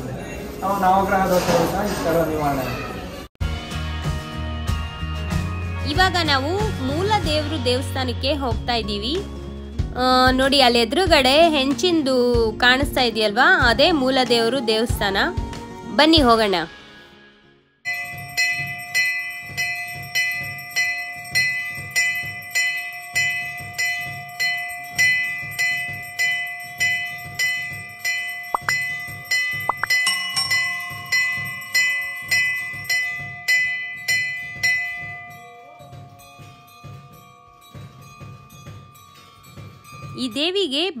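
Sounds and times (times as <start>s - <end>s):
bells struck: 17.9s - 41.0s.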